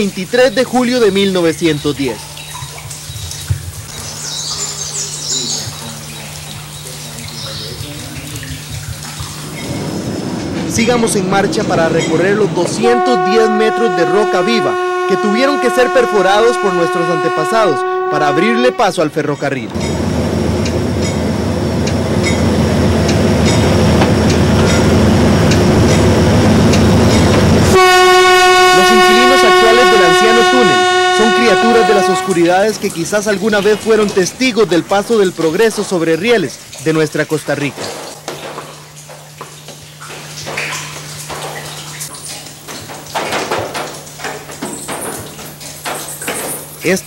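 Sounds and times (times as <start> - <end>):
water splashing and trickling: 0.0 - 47.0
train rumble: 5.4 - 36.7
wheels clacking over rail joints: 6.7 - 13.6, 19.7 - 27.7, 37.6 - 47.0.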